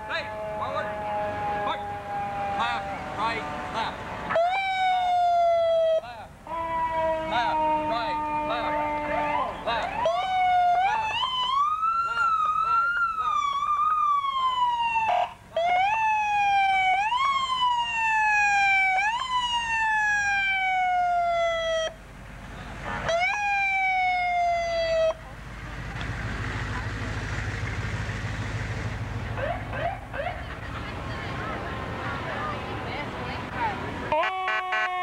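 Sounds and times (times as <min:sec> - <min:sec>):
large vehicle rumbling past: 0:00.0 - 0:15.0, 0:15.6 - 0:34.2
emergency vehicle siren: 0:00.0 - 0:22.1, 0:22.9 - 0:35.0.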